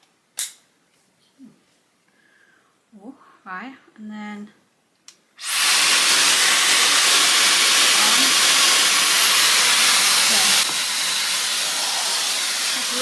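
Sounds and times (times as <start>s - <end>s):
hair styler blowing air: 5.4s - 13.0s.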